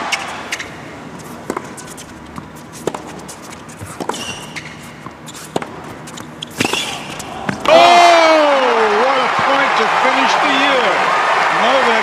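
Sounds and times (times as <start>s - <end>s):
sneaker squeak: 0.0s - 7.6s
racket hitting tennis ball: 0.0s - 7.9s.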